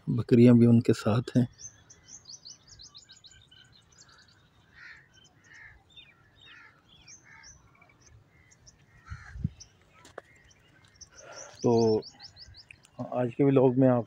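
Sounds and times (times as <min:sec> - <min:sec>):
small birds chirping: 0:00.0 - 0:14.0
crow cawing: 0:04.0 - 0:09.5.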